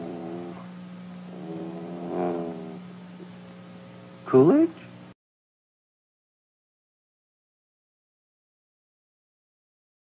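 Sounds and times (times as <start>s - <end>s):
faint steady hum: 0.0s - 5.2s.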